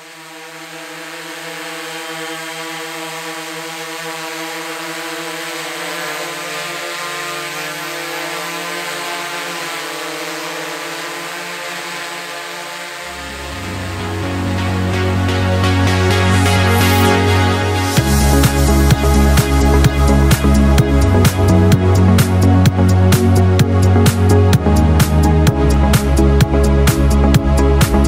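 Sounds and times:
drone motors whining: 0:00.0 - 0:28.0
electronic music with deep bass: 0:12.1 - 0:28.0.

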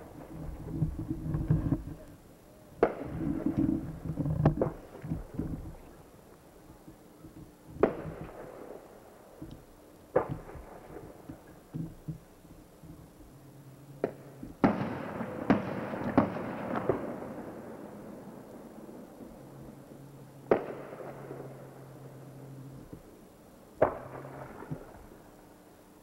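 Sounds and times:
fireworks bangs with echo: 0:02.8 - 0:03.6, 0:07.8 - 0:09.0, 0:14.0 - 0:18.4, 0:20.5 - 0:21.7, 0:23.8 - 0:25.2
light firework pops: 0:02.8 - 0:03.7, 0:07.8 - 0:08.8, 0:14.0 - 0:17.2, 0:20.5 - 0:21.2, 0:23.8 - 0:25.0.

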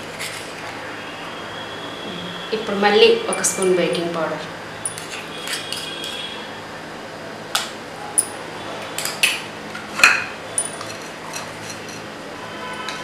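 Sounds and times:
spoon and lid clinking on jar: 0:10.0 - 0:12.0.

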